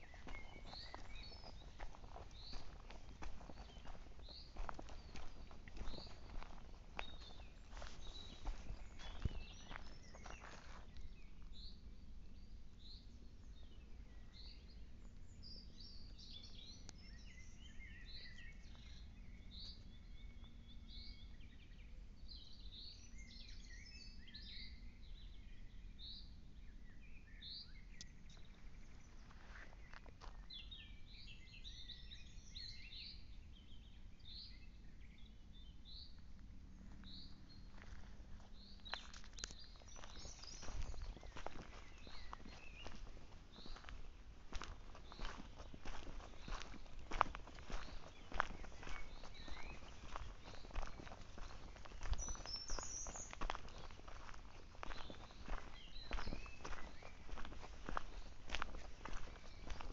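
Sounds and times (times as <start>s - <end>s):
twittering bird chirps: 0.0s - 11.2s, 38.7s - 59.9s
faint woodland birds singing: 0.0s - 59.9s.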